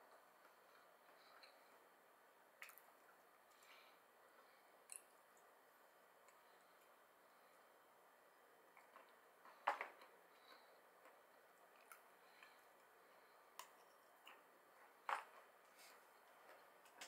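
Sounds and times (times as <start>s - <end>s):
clicks and smacks of chewing: 2.6s - 3.8s, 4.8s - 5.5s, 13.6s - 14.4s.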